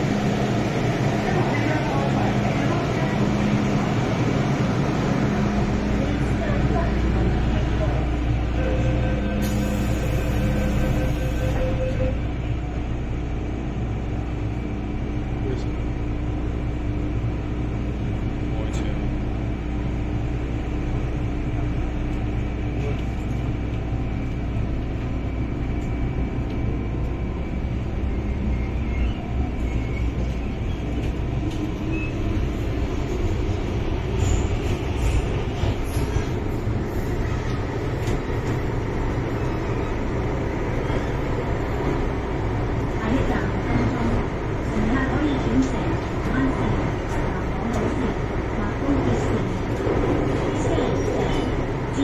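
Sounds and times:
wheel and track rumble: 0:12.6 - 0:52.0.

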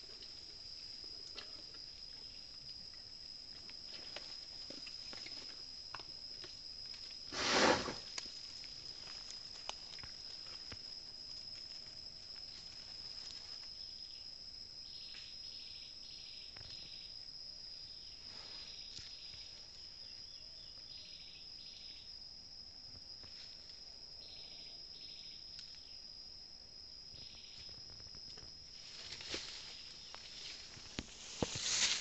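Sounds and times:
insects droning: 0:00.0 - 0:32.0
insect pulsed chirps: 0:08.1 - 0:22.4, 0:23.2 - 0:32.0.

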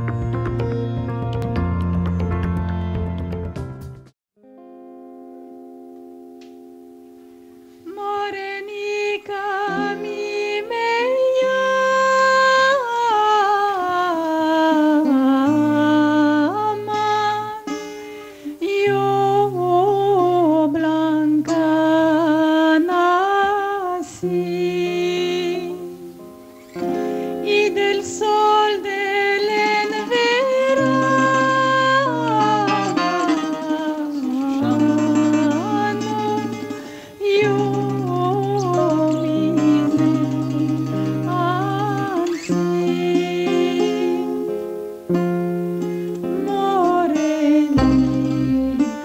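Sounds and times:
double bass notes: 0:00.0 - 0:04.1, 0:47.7 - 0:49.0
mandolin: 0:00.0 - 0:49.0
woman singing with vibrato: 0:07.8 - 0:26.3, 0:26.9 - 0:45.1, 0:46.1 - 0:49.0
plucked acoustic guitar: 0:09.2 - 0:12.9, 0:13.6 - 0:49.0.

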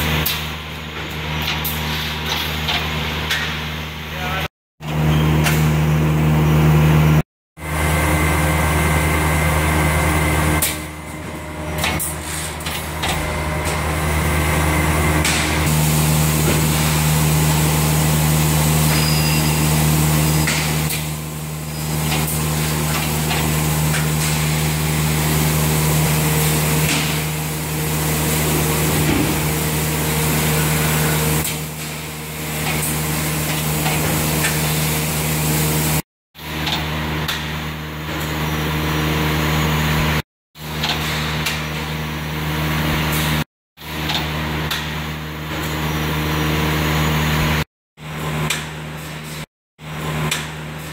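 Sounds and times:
machine humming: 0:04.1 - 0:36.0.

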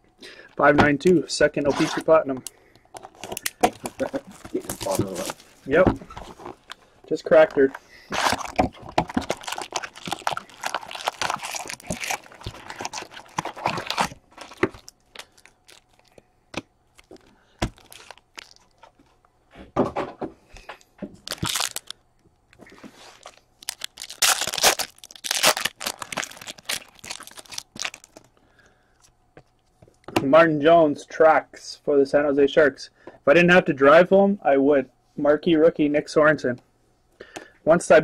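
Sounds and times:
foil packs crinkling and tearing: 0:03.1 - 0:16.2, 0:16.9 - 0:19.0, 0:21.2 - 0:22.0, 0:23.0 - 0:28.3.

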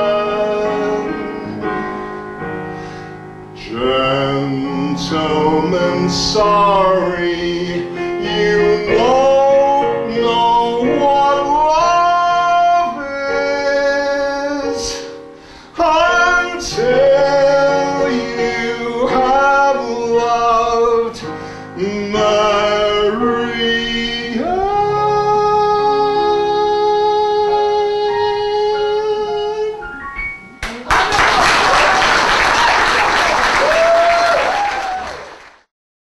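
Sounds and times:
man singing: 0:00.0 - 0:02.0, 0:03.6 - 0:30.0
instrumental accompaniment: 0:00.0 - 0:30.9.

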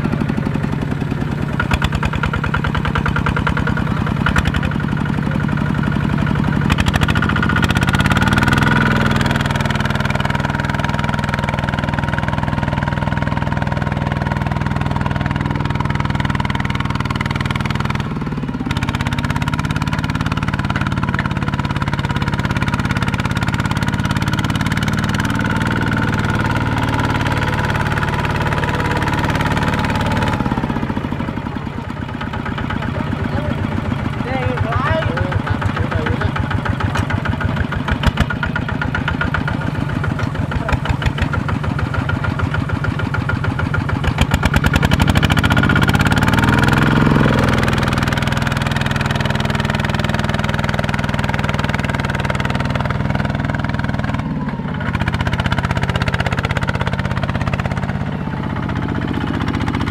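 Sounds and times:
diesel engine under load: 0:00.0 - 0:59.9.

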